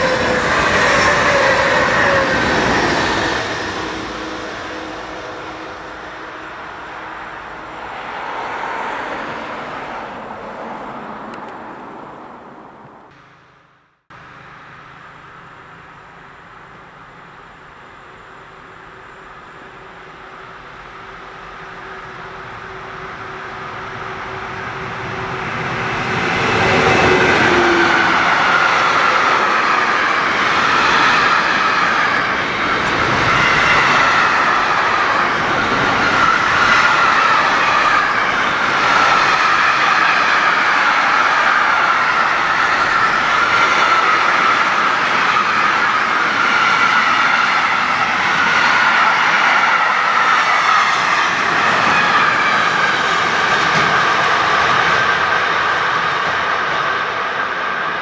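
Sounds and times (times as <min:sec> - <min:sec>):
high wheel squeal: 0:00.0 - 0:09.1, 0:21.6 - 0:56.2
train wagons rolling by: 0:00.0 - 0:13.4, 0:14.2 - 0:58.0.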